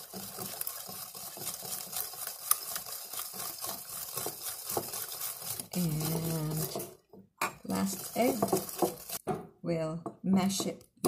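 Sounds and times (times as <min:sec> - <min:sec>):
whisk clicking against bowl: 0:00.0 - 0:06.9, 0:07.9 - 0:09.2.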